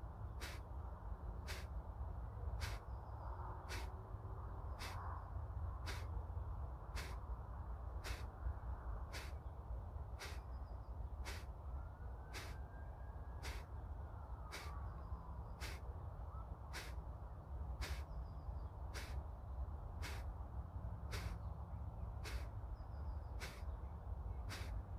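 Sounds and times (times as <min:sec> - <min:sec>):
forceful nasal exhalations: 0:00.4 - 0:00.6, 0:01.5 - 0:01.7, 0:03.7 - 0:03.9, 0:04.8 - 0:05.0, 0:05.8 - 0:06.1, 0:07.0 - 0:07.2, 0:08.0 - 0:08.3, 0:09.1 - 0:09.4, 0:10.2 - 0:10.4, 0:11.2 - 0:11.5, 0:12.4 - 0:12.6, 0:15.6 - 0:15.8, 0:16.7 - 0:17.0, 0:17.8 - 0:18.0, 0:19.0 - 0:19.2, 0:20.0 - 0:20.3, 0:21.1 - 0:21.4, 0:22.2 - 0:22.5, 0:24.5 - 0:24.8.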